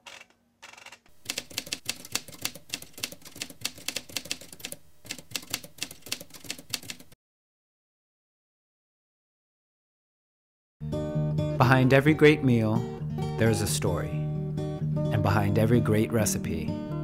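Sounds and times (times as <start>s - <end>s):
typewriter keys clacking: 0.0s - 7.2s.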